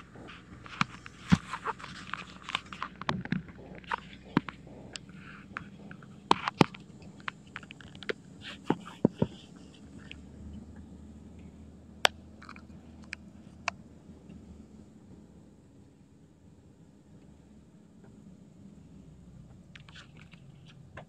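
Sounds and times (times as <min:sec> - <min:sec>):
phone being handled: 0:00.0 - 0:10.1.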